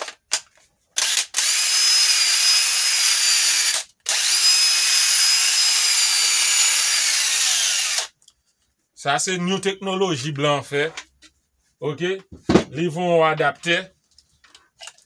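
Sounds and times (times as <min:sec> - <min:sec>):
cordless drill motor whine: 0:01.0 - 0:08.1.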